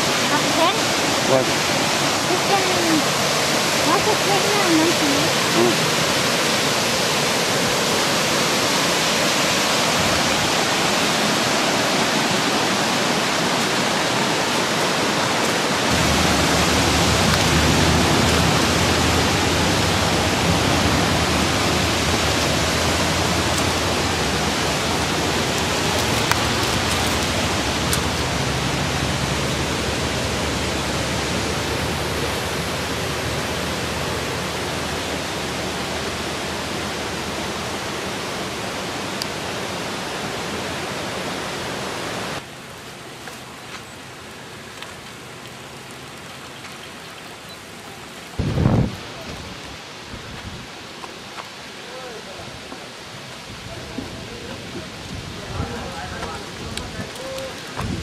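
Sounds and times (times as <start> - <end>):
waterfall rushing: 0.0 - 58.0
deep rumble: 15.9 - 35.0.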